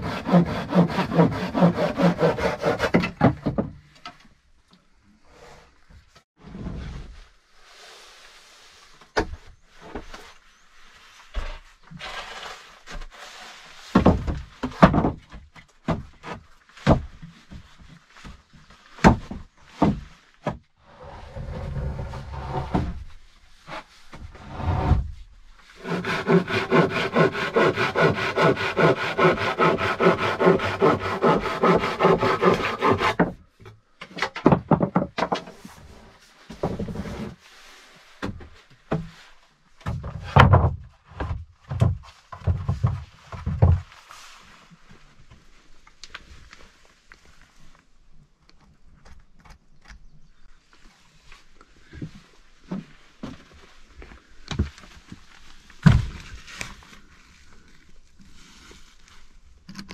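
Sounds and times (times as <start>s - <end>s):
wood rasping: 0.0s - 3.2s, 25.8s - 33.3s.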